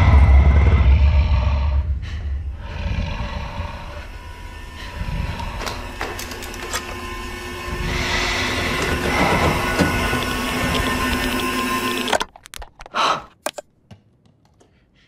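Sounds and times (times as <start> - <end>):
deep low rumble: 0.0 - 11.0
tense sound bed: 0.0 - 12.2.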